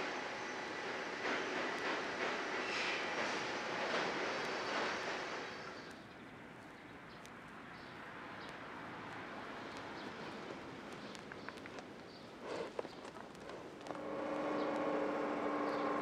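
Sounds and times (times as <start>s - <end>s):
faint hiss: 0.0s - 16.0s
faint clicks: 5.8s - 14.0s.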